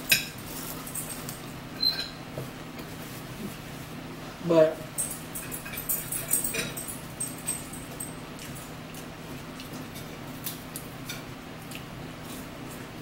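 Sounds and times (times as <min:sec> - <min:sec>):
cutlery clicking on plates: 0:05.4 - 0:06.9.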